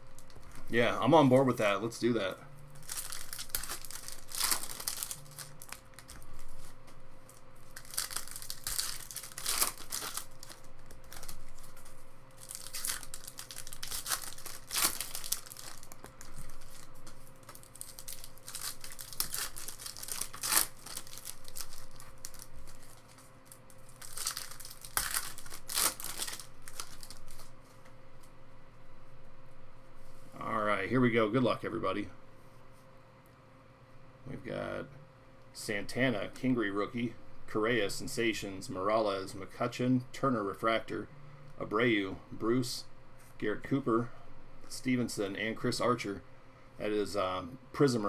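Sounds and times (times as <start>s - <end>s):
foil wrappers tearing and crinkling: 2.8s - 27.5s.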